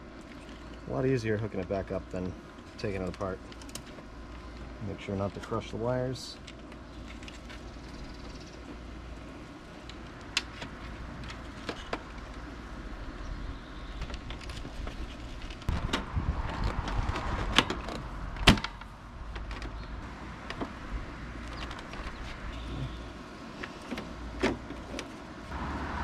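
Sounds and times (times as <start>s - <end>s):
plastic rattling and scraping: 9.8s - 12.5s, 13.8s - 20.8s, 21.4s - 22.9s, 23.6s - 25.3s.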